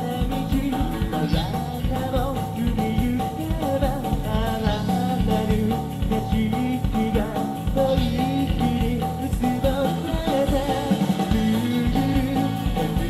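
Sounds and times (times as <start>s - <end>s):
bass guitar: 0.0s - 13.0s
electric guitars: 0.0s - 13.0s
man singing: 0.0s - 13.0s
steady drum beat: 0.0s - 13.0s.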